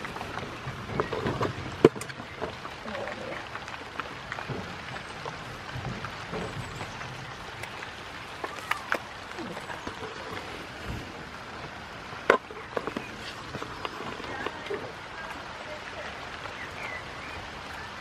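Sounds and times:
sharp raindrop ticks: 0:00.0 - 0:10.5
rain falling: 0:00.0 - 0:18.0.

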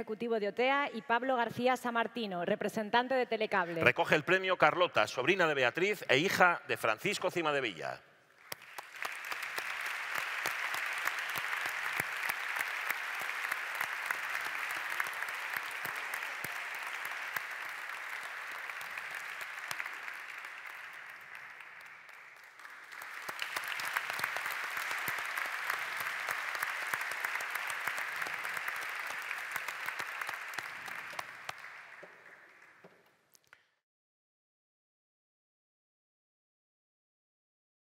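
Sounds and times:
audience applauding: 0:08.4 - 0:33.1.

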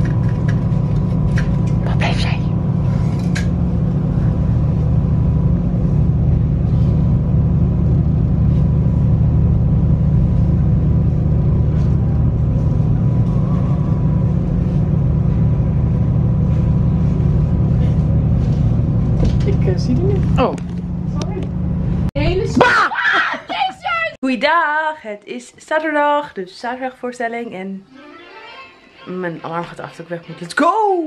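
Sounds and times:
low machine hum: 0:00.0 - 0:22.5.

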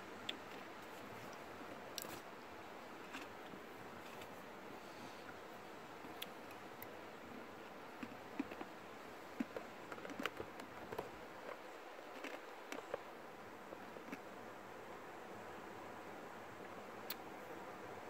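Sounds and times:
steady hiss of air: 0:03.7 - 0:07.6
small clicks and crackles: 0:09.4 - 0:13.1.

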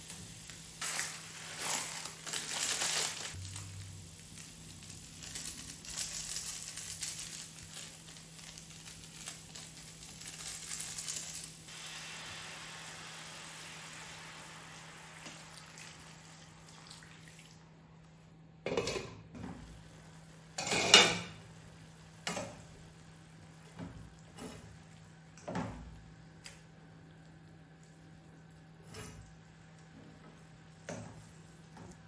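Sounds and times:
water poured into hot pan hissing: 0:00.0 - 0:03.4, 0:10.8 - 0:17.6
food sizzling in oil: 0:00.0 - 0:16.9.

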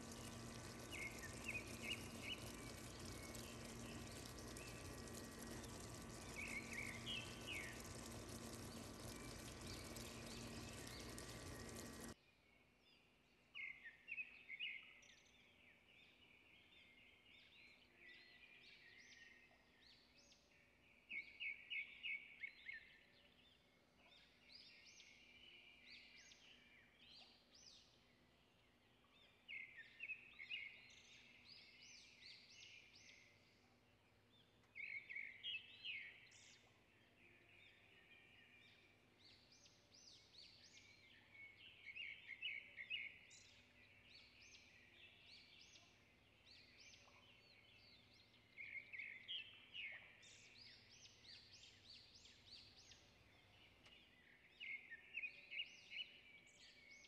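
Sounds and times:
small birds chirping: 0:00.0 - 0:12.2
steady hiss and low hum: 0:00.0 - 0:12.2.

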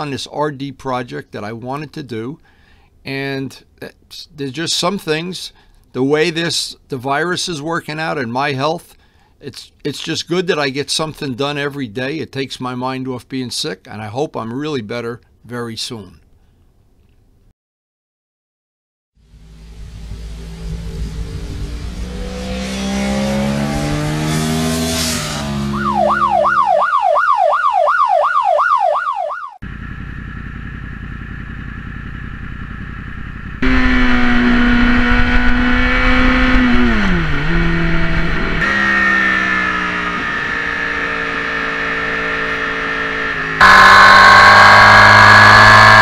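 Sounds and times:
motorcycle engines revving: 0:20.0 - 0:26.5, 0:30.1 - 0:46.0
warbling siren-like tone: 0:25.6 - 0:35.0, 0:43.5 - 0:46.0.

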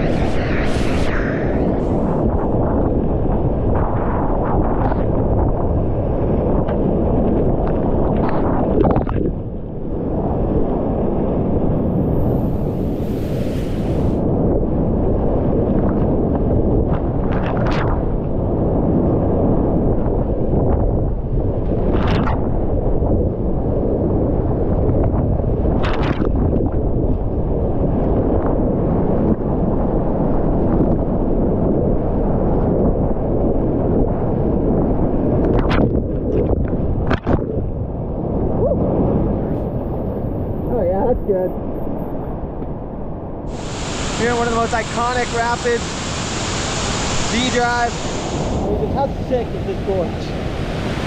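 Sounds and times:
wave splashing: 0:00.0 - 0:03.4, 0:11.9 - 0:14.2, 0:43.5 - 0:51.0
rapids rushing and rumbling: 0:00.0 - 0:06.2, 0:43.5 - 0:51.0
wind buffeting microphone: 0:00.0 - 0:51.0.

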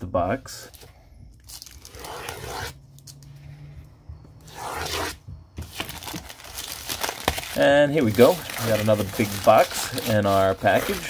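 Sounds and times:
plastic crinkling and tearing: 0:01.4 - 0:02.4, 0:05.7 - 0:11.0
plastic bag slit with knife: 0:01.5 - 0:02.8, 0:06.0 - 0:11.0.

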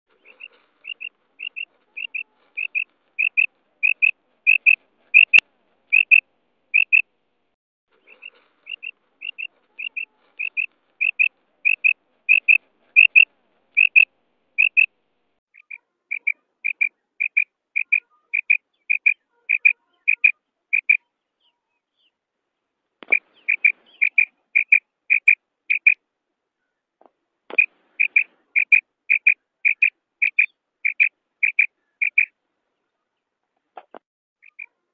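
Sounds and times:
quail calling: 0:00.1 - 0:07.1, 0:08.0 - 0:14.9, 0:15.6 - 0:21.6, 0:23.0 - 0:26.0, 0:27.5 - 0:32.3, 0:34.4 - 0:34.8.

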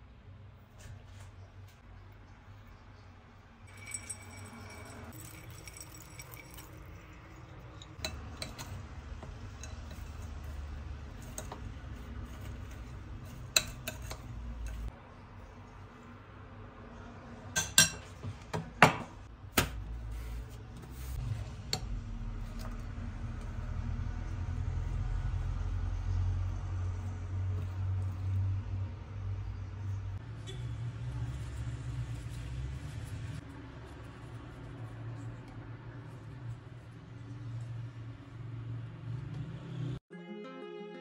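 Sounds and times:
metal spoon clinking in glass bowl: 0:03.7 - 0:08.8, 0:13.3 - 0:14.9.

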